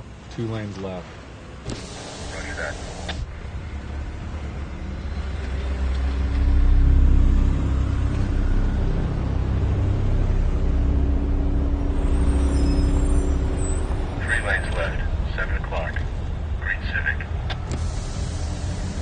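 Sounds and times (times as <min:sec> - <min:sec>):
cars idling in traffic: 0:01.7 - 0:03.4, 0:11.8 - 0:19.0
low hum: 0:01.9 - 0:19.0.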